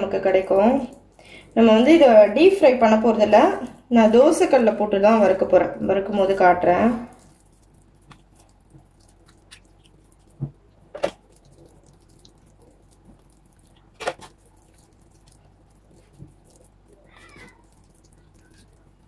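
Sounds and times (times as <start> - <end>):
hands squishing wet paste: 6.0 - 19.0.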